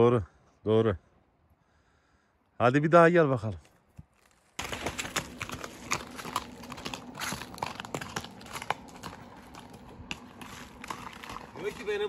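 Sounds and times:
dry leaves crunching: 0:04.0 - 0:12.0
horse hooves knocking: 0:04.6 - 0:12.0.

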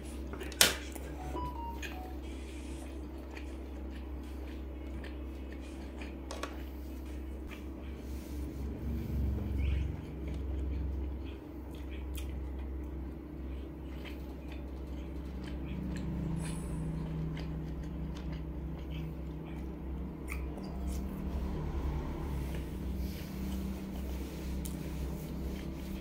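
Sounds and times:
soft chewing: 0:00.0 - 0:26.0
steady low hum: 0:00.0 - 0:26.0
wet mouth clicks and smacks: 0:20.2 - 0:21.1.

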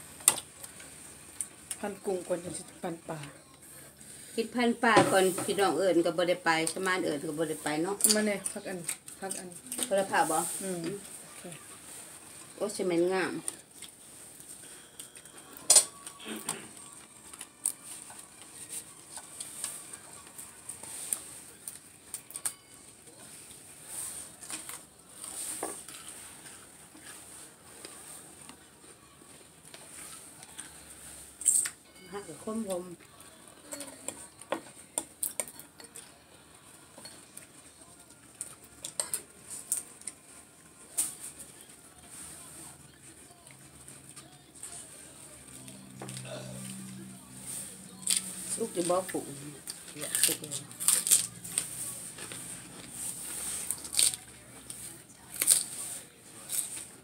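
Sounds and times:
soft handling of food: 0:06.4 - 0:57.0
plates and utensils clinking: 0:14.7 - 0:16.9.

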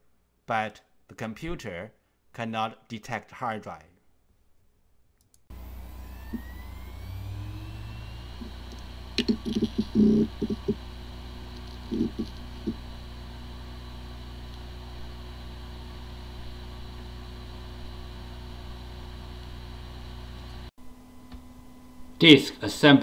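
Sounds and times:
rising whine: 0:05.5 - 0:22.1
hard disk drive humming: 0:05.5 - 0:22.3.

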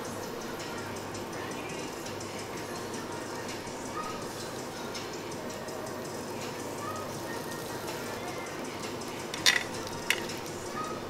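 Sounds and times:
background music: 0:00.0 - 0:11.0
restaurant din: 0:06.0 - 0:11.0.

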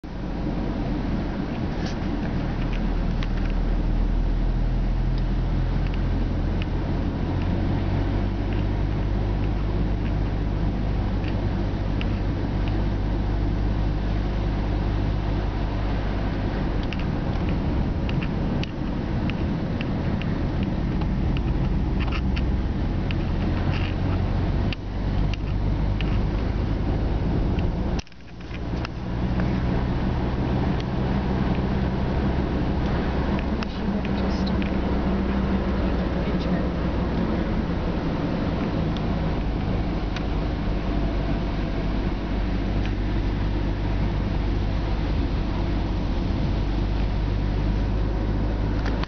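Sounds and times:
car engine and road hum: 0:00.0 - 0:49.0
light clicks and rattles: 0:16.8 - 0:26.4.

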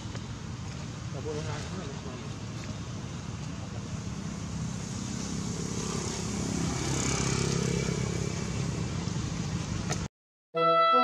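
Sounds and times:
motor vehicle rumbling past: 0:02.8 - 0:10.1.

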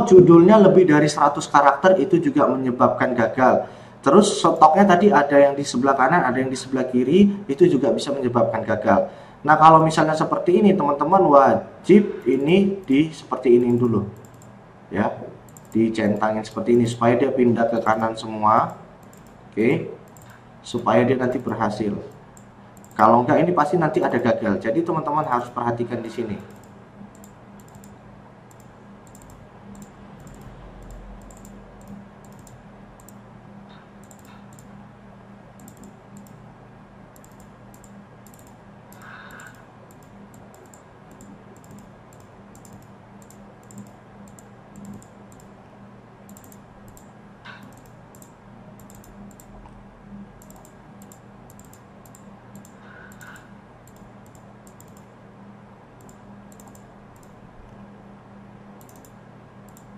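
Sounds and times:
steady low hum: 0:00.0 - 0:59.9
keyboard typing: 0:13.6 - 0:14.6, 0:15.5 - 0:16.7, 0:17.6 - 0:19.4, 0:20.1 - 0:20.4, 0:21.2 - 0:24.4, 0:26.1 - 0:34.8, 0:35.6 - 0:36.4, 0:37.2 - 0:45.6, 0:46.3 - 0:49.6, 0:50.4 - 0:55.1, 0:56.0 - 0:57.4, 0:58.8 - 0:59.9.

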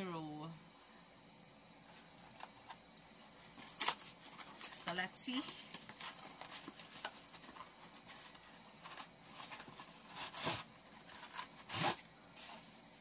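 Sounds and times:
packaging rubbing and swishing: 0:03.6 - 0:12.8.

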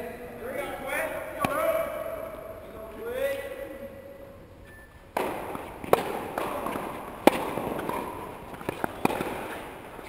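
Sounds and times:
tennis balls struck by rackets: 0:01.4 - 0:01.8, 0:05.1 - 0:10.0.

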